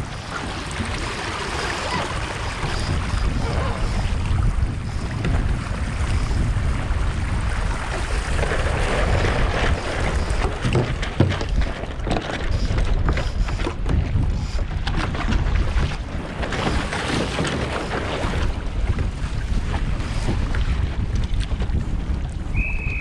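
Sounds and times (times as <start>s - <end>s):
boat knocks and sail flutters: 0.0s - 23.0s
water splashing along hull: 0.0s - 23.0s
wind buffeting microphone: 0.0s - 23.0s.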